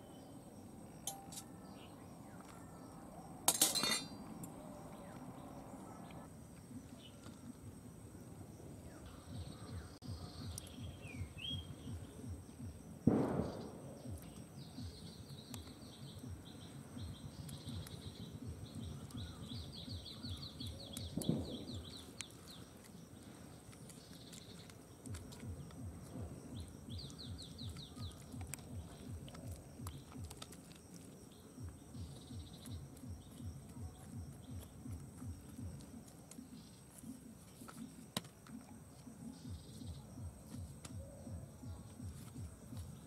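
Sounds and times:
small birds chirping: 0:00.0 - 0:43.0.

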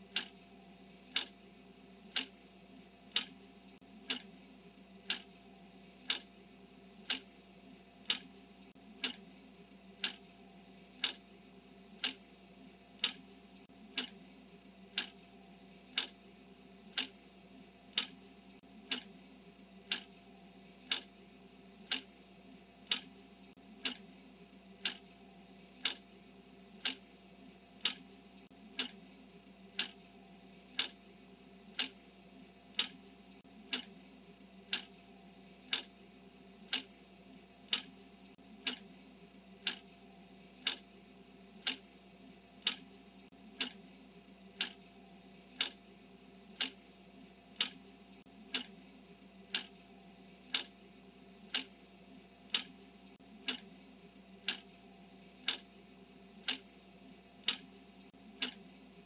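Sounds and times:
clock ticking: 0:00.0 - 0:00.4, 0:01.1 - 0:01.4, 0:02.1 - 0:02.5, 0:03.1 - 0:04.4, 0:05.0 - 0:05.4, 0:06.0 - 0:06.3, 0:07.0 - 0:07.4, 0:08.0 - 0:09.3, 0:10.0 - 0:10.4, 0:11.0 - 0:11.2, 0:12.0 - 0:12.3, 0:13.0 - 0:14.2, 0:14.9 - 0:15.3, 0:15.9 - 0:16.2, 0:16.9 - 0:17.3, 0:17.9 - 0:19.2, 0:19.8 - 0:20.2, 0:20.8 - 0:21.2, 0:21.8 - 0:22.2, 0:22.8 - 0:23.2, 0:23.8 - 0:24.1, 0:24.8 - 0:25.2, 0:25.8 - 0:26.1, 0:26.8 - 0:27.2, 0:27.8 - 0:29.1, 0:29.7 - 0:30.0, 0:30.7 - 0:31.0, 0:31.7 - 0:32.1, 0:32.7 - 0:33.0, 0:33.6 - 0:34.0, 0:34.6 - 0:35.0, 0:35.6 - 0:36.0, 0:36.6 - 0:37.0, 0:37.6 - 0:38.9, 0:39.6 - 0:39.9, 0:40.6 - 0:40.9, 0:41.6 - 0:41.9, 0:42.6 - 0:43.9, 0:44.5 - 0:45.8, 0:46.5 - 0:48.8, 0:49.4 - 0:49.8, 0:50.4 - 0:50.8, 0:51.5 - 0:51.8, 0:52.4 - 0:53.7, 0:54.4 - 0:54.8, 0:55.4 - 0:55.7, 0:56.4 - 0:58.7
faint steady hum: 0:00.0 - 0:59.0.

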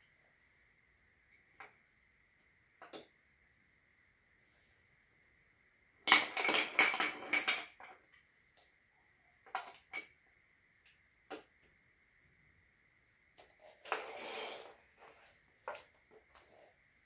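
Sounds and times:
wooden toy pieces clacking: 0:06.1 - 0:08.0.

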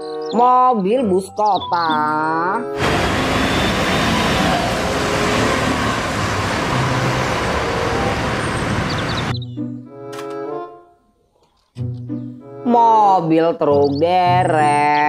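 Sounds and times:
bus engine and road noise: 0:02.8 - 0:09.3.

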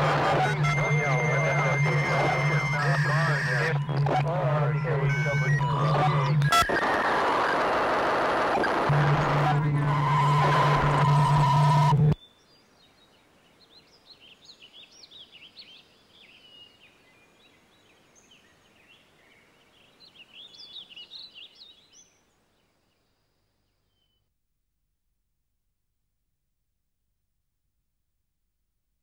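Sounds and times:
loud noise burst with steady tone: 0:00.0 - 0:12.2
low hum: 0:00.0 - 0:12.2
small birds chirping: 0:12.2 - 0:23.0.

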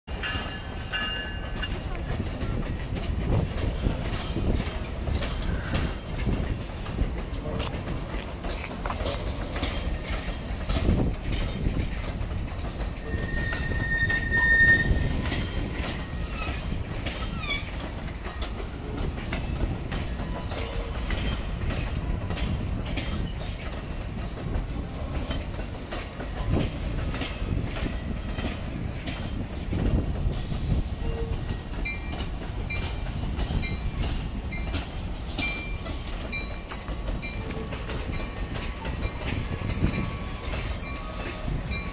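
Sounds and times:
train coaches rolling past: 0:00.1 - 0:41.9
wheels clacking over rail joints: 0:00.1 - 0:41.9
high wheel squeal: 0:13.0 - 0:17.8.

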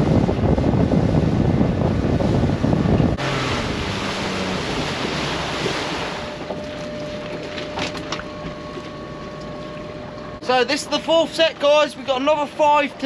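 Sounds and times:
water rushing past: 0:00.0 - 0:07.3
wind buffeting microphone: 0:00.0 - 0:10.4
boat engine rumble: 0:00.0 - 0:13.0.

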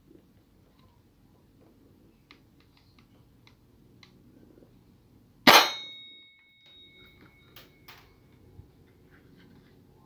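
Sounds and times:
pistol shot: 0:05.5 - 0:05.9
metal plate ringing: 0:05.5 - 0:08.1.

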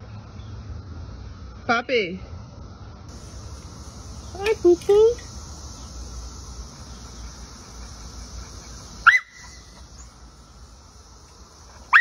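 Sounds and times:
dog barking: 0:09.0 - 0:10.0.

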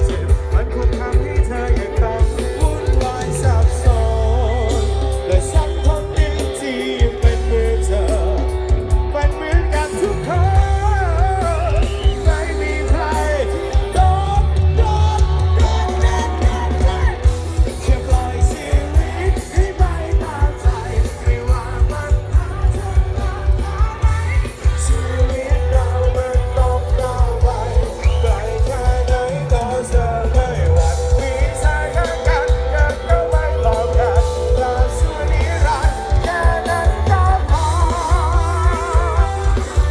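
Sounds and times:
live rock band playing loudly: 0:00.0 - 0:39.9
person singing: 0:00.0 - 0:39.9.

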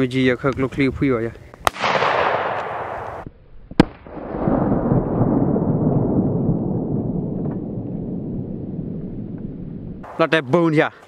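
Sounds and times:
gunshot crack: 0:01.6 - 0:08.0
rolling echo rumble: 0:01.7 - 0:10.2.

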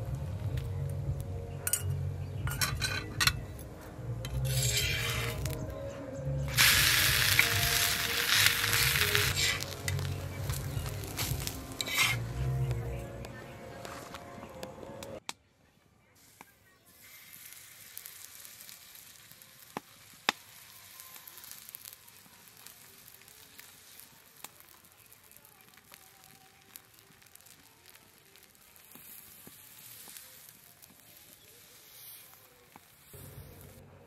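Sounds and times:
batter sizzling on a hot pan: 0:04.2 - 0:05.9, 0:06.5 - 0:13.0, 0:16.2 - 0:33.8.

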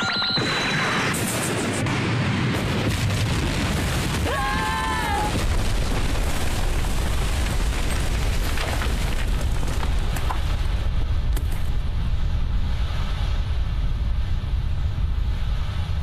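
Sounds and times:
cartoon explosion with deep rumble: 0:00.4 - 0:07.9.

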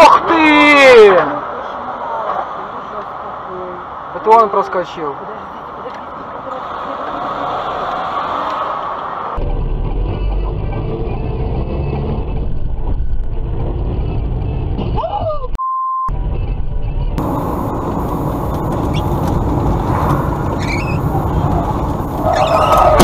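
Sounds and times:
car engine and road noise: 0:00.0 - 0:23.0
short censor beep: 0:15.6 - 0:16.1.

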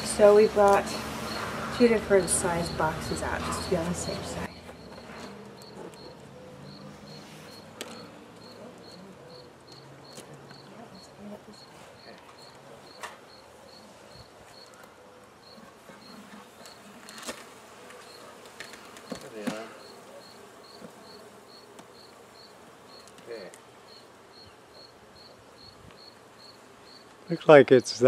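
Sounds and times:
honey bees buzzing: 0:00.0 - 0:28.0
hive equipment knocks: 0:18.6 - 0:19.7.

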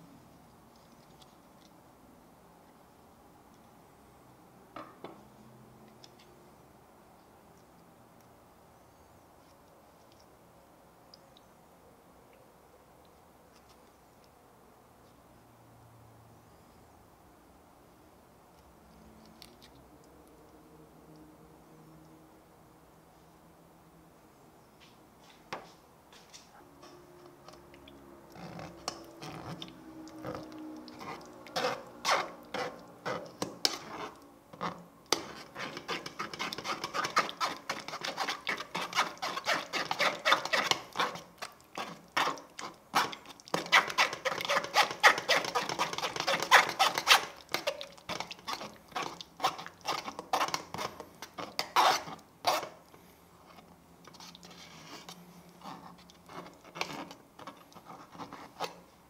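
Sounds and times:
spoon rasping through metal sieve: 0:28.4 - 0:34.2, 0:35.1 - 0:52.7.

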